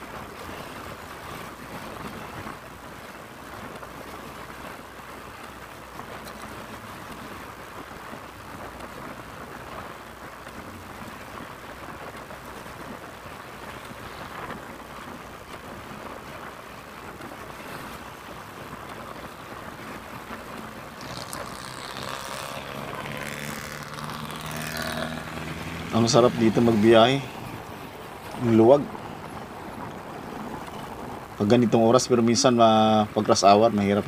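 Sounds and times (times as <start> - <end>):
wind rushing over microphone: 0.0 - 33.9
road and traffic noise: 0.0 - 34.0
vehicle engine drone: 17.6 - 31.7.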